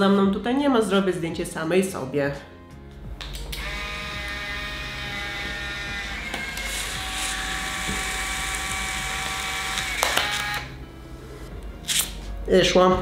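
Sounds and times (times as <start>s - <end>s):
camera motor whirring: 3.6s - 10.7s.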